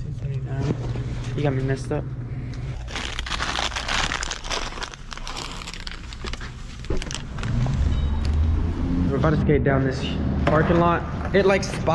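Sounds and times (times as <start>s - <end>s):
crinkling and rustling: 2.7s - 8.4s.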